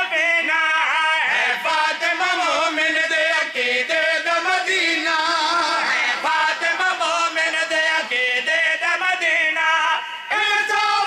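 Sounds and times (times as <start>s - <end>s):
men singing chant-like verse: 0.8s - 11.0s.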